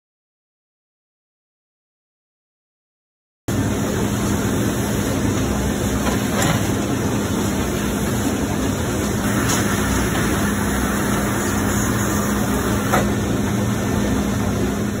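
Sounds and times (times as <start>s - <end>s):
machine mechanical drone: 3.5s - 15.0s.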